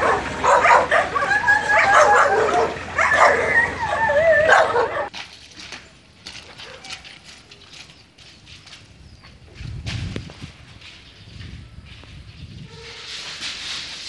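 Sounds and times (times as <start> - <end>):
dog whining and yelping: 0.0 - 5.1.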